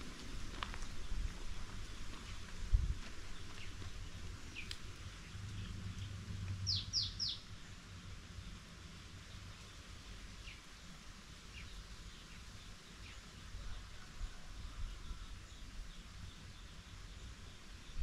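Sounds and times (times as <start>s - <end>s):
small bird chirping: 4.5s - 7.5s.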